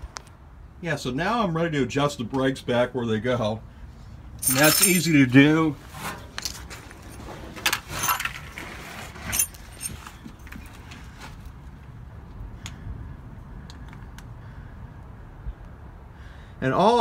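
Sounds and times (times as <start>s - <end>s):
metal parts clinking: 4.4s - 5.2s, 6.4s - 10.2s.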